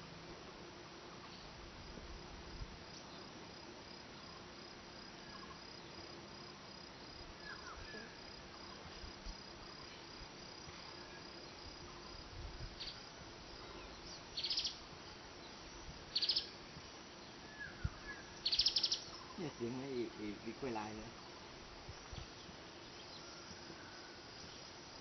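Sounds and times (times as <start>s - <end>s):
pulsing insect trill: 2.5s - 25.0s
faint bird chirps: 7.4s - 8.8s, 12.8s - 13.0s, 13.6s - 14.8s, 15.4s - 16.6s, 17.2s - 21.3s, 22.0s - 24.7s.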